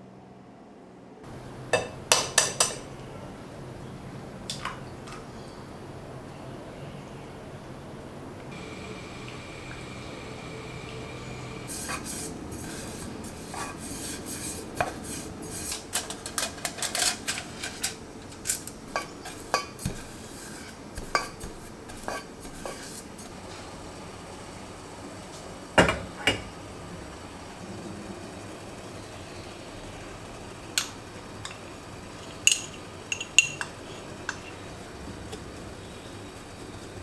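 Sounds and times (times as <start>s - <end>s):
brush tapping metal cake tin: 18.9s - 23.0s.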